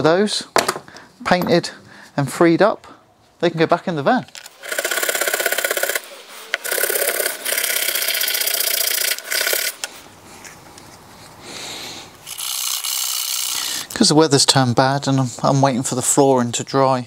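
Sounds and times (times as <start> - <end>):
wire brush scrubbing metal: 4.6 - 9.8.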